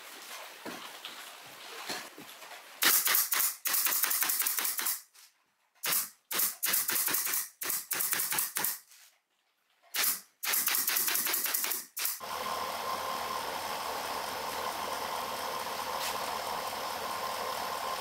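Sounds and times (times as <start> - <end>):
pneumatic nailer firing: 2.8 - 5.0, 5.8 - 8.8, 10.0 - 12.3.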